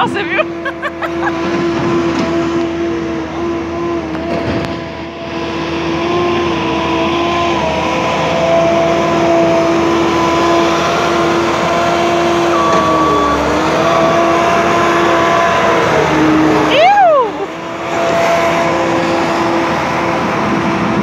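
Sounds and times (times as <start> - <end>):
loader diesel engine whining: 0.0 - 21.0.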